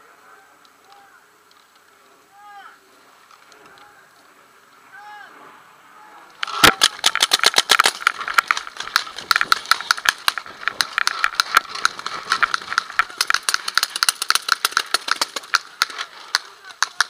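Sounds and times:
paintball markers firing pops: 6.4 - 17.0.

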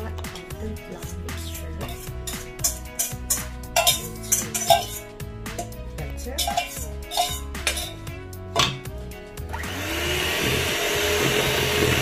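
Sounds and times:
background music: 0.0 - 12.0
whisk knocking on a steel bowl: 1.8 - 5.0, 6.4 - 8.0
electric hand mixer running: 9.5 - 12.0.

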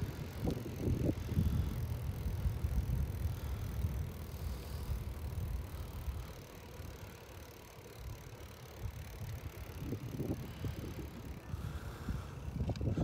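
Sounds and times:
wind on microphone: 0.0 - 5.6, 9.8 - 13.0
bicycle tyres rolling on asphalt: 0.0 - 13.0.

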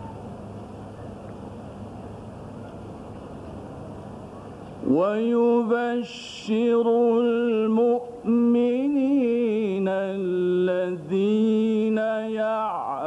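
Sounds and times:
man reciting melodically: 4.8 - 13.0.

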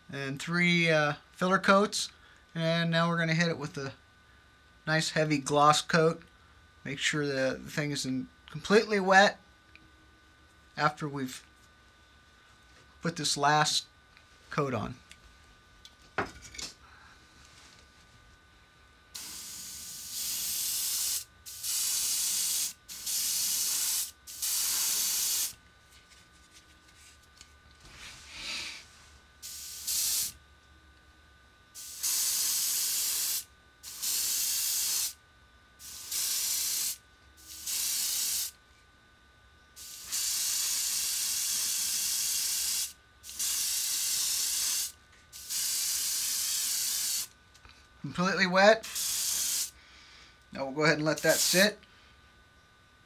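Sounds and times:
airbrush spraying hiss: 19.2 - 25.6, 28.2 - 30.4, 31.8 - 35.2, 35.8 - 38.6, 39.8 - 47.3, 48.8 - 49.8, 51.2 - 51.7.

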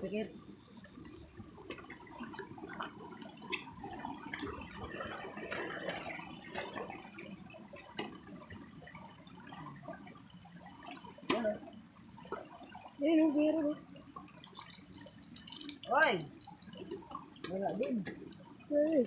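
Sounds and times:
water dripping: 10.7 - 19.0
water splashing in stream: 14.3 - 18.4.

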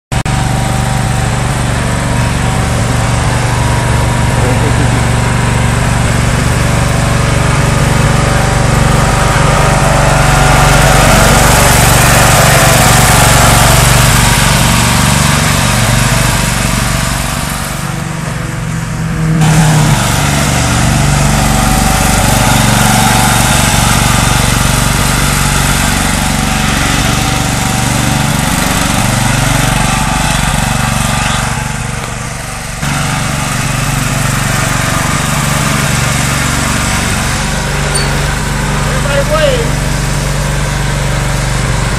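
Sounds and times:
riding mower engine running: 0.1 - 41.9.

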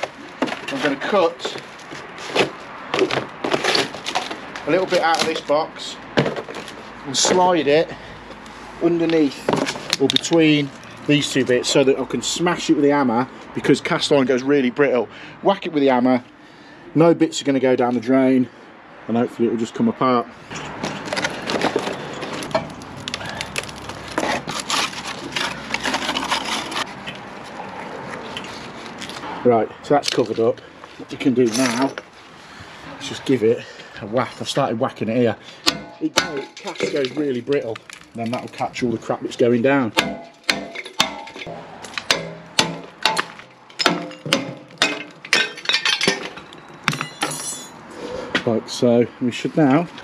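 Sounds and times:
cardboard scraping and rustling: 20.8 - 22.5, 23.6 - 27.0
hammer clanking on iron pipe: 35.6 - 37.0, 40.0 - 46.3.

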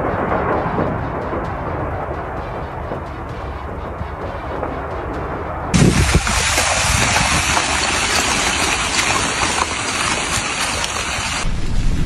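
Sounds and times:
low rumble: 0.0 - 12.0
lava hissing over snow: 5.8 - 11.5.

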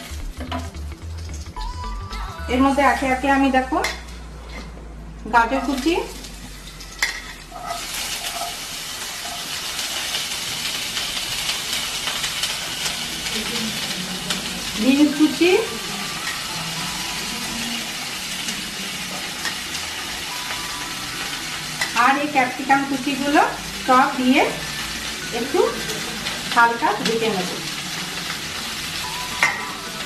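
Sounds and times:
vegetables sizzling in hot oil: 0.0 - 4.3, 5.3 - 30.0.

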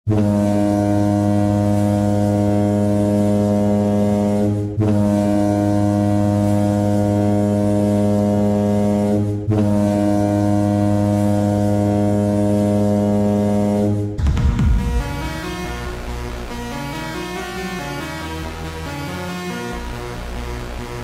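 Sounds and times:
goal horn blasting: 0.1 - 17.8.

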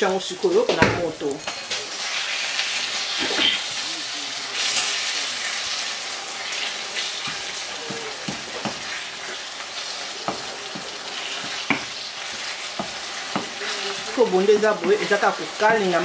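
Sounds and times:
vegetables sizzling in oil: 0.0 - 16.0
spatula stirring in pan: 1.4 - 16.0
spatula knocking against pan: 7.8 - 8.9, 12.8 - 13.6.

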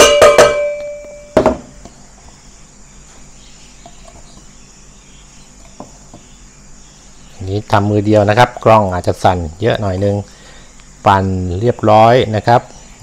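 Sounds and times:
metal bowl ringing: 0.0 - 1.4
plastic jar knocking on metal bowl: 0.0 - 1.8.

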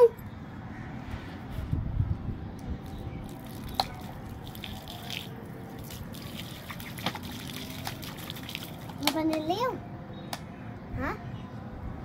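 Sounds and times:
water pouring onto sand: 3.3 - 9.0.

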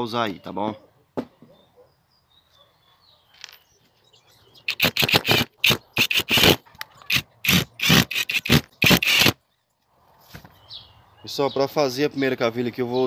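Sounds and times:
screwdriver scraping strokes: 4.7 - 9.4.

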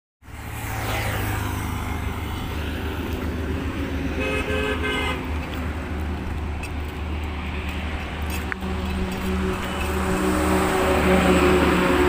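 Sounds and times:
highway traffic rumble: 0.2 - 12.0
vehicle horn: 4.1 - 5.3.

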